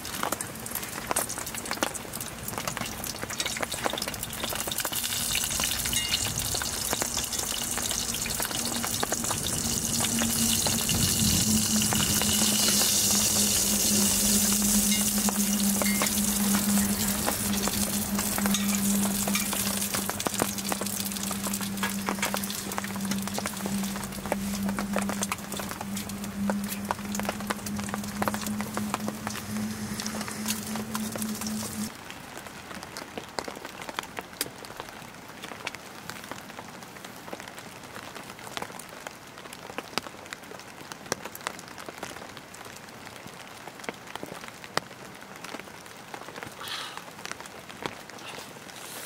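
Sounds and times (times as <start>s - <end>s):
food sizzling in a pan: 2.8s - 31.9s
steady low hum: 5.0s - 31.9s.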